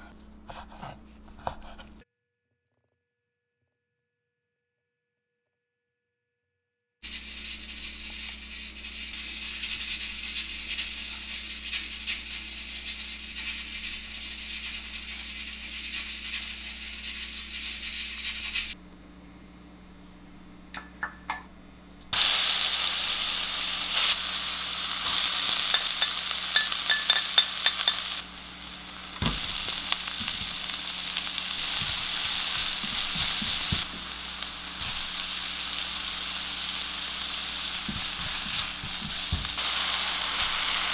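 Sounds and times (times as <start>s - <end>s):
food sizzling in frying pan: 7.0s - 18.8s, 22.2s - 40.9s.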